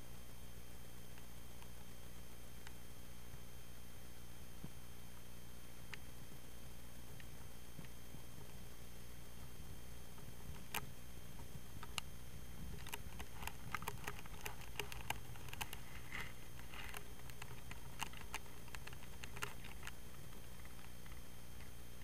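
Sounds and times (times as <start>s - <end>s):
light clicks and taps: 12.7s - 21.7s.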